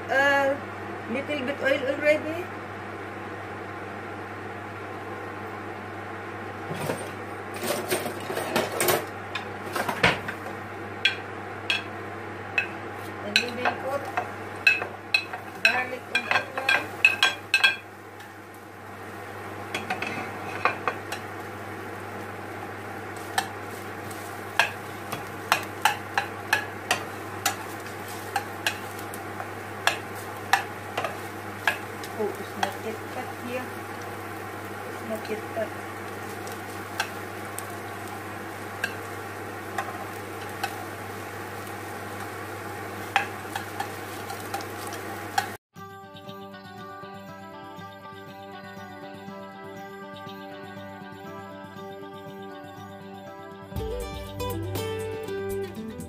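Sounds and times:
potatoes sizzling in a pan: 9.1s - 45.6s
utensil scraping a pan: 19.8s - 21.0s.

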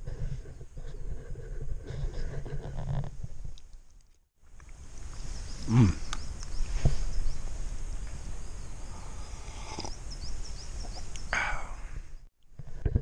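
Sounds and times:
steady outdoor hiss: 4.4s - 12.9s
small birds chirping: 4.5s - 12.3s
short breathy noise: 11.3s - 12.2s.

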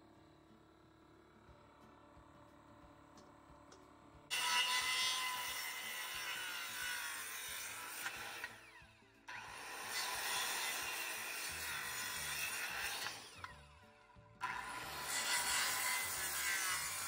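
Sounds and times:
circular saw cutting wood: 4.3s - 17.0s.

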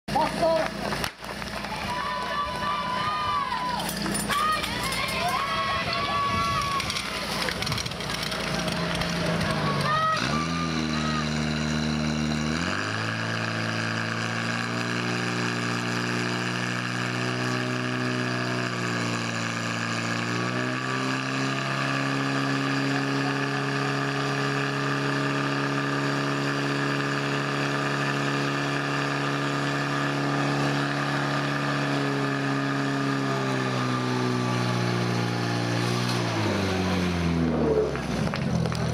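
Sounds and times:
fire pump engine running: 0.1s - 38.9s.

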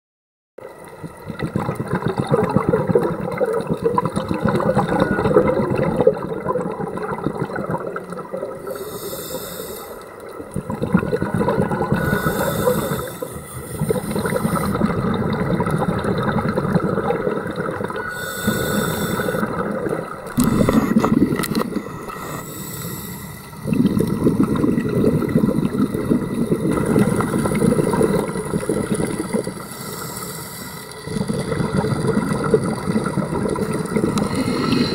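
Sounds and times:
bubbling exhales underwater: 1.0s - 9.2s, 10.2s - 22.6s, 23.5s - 29.7s, 31.0s - 34.9s
regulator inhale hiss: 8.6s - 10.3s, 12.0s - 14.8s, 18.0s - 19.6s, 20.3s - 23.7s, 29.5s - 31.1s, 34.2s - 34.9s.

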